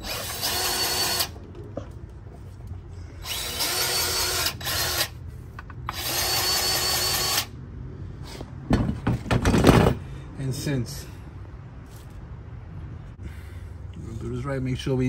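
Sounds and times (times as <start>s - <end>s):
grease gun motor running: 3.2s - 5.2s.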